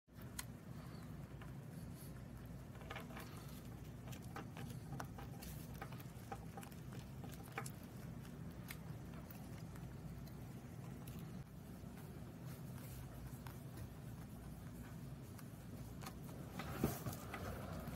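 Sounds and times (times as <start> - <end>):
rabbit chewing crunchy food: 0.1 - 17.9
steady low hum: 0.1 - 17.9.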